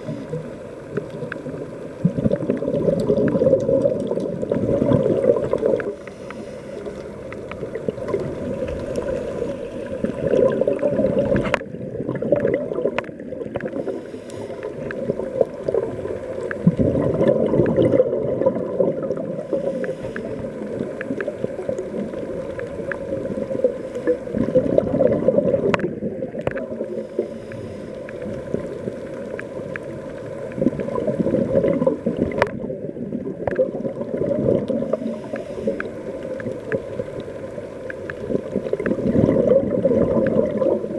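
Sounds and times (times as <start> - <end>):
underwater bubbles gurgling: 0.0 - 40.9
small clicks: 2.5 - 4.5.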